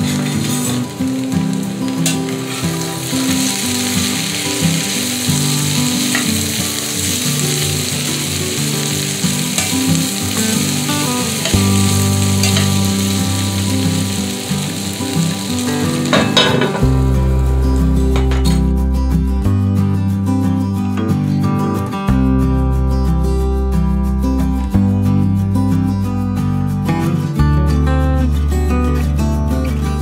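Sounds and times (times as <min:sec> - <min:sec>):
potatoes and onions sizzling: 0:00.0 - 0:18.8.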